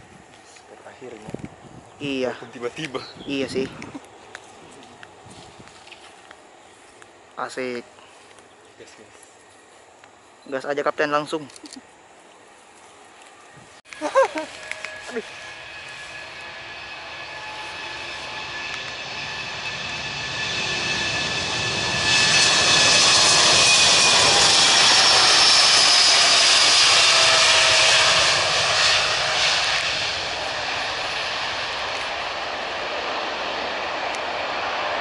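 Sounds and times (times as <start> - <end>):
jet airliner taking off: 13.9 - 35.0.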